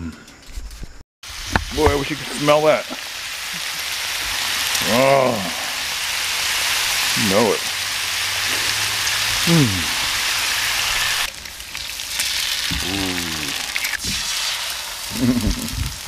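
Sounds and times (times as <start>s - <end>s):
bacon sizzling on griddle: 1.2s - 16.0s
sharp popping of frying fat: 1.3s - 2.2s, 10.9s - 16.0s.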